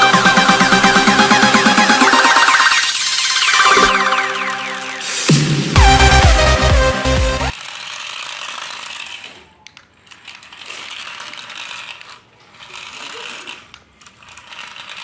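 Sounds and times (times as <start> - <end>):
toy motor whirring and rattling: 7.5 - 15.0.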